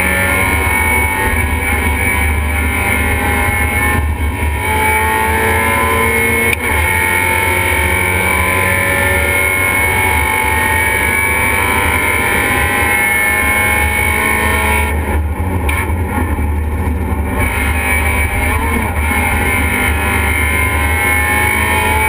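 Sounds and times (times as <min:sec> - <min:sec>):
race car engine running hard: 0:00.0 - 0:22.0
wind and road noise: 0:00.0 - 0:22.0.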